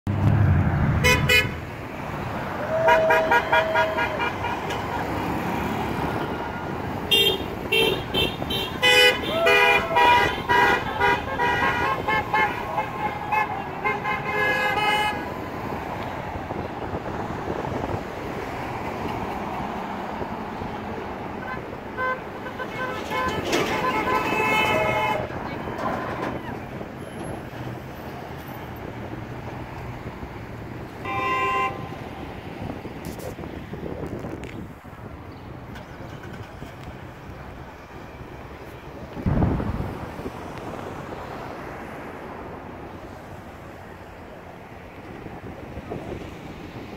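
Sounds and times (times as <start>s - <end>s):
road traffic noise: 0.0s - 46.9s
car horns honking: 1.0s - 1.8s, 2.6s - 5.4s, 6.2s - 15.4s, 21.4s - 26.5s, 31.0s - 32.2s.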